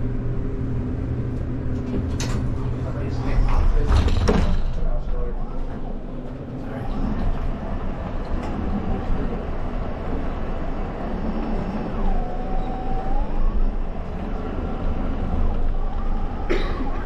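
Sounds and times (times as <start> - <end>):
brief tone: 11.4 - 13.5.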